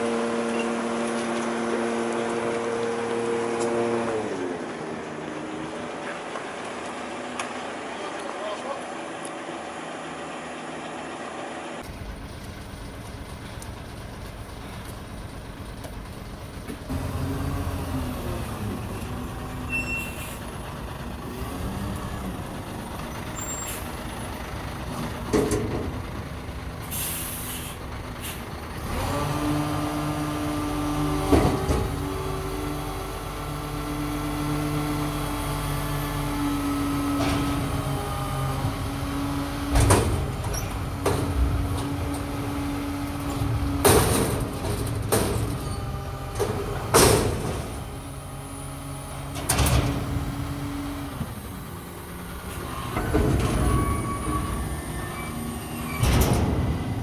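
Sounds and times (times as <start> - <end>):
diesel engine running: 0.0 - 57.0
air brake hisses: 26.8 - 28.5.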